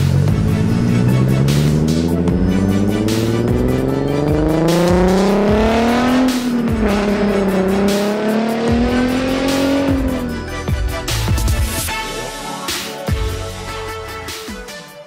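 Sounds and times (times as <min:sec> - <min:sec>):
car engine accelerating: 0:00.0 - 0:11.8
music with a beat: 0:00.0 - 0:15.0.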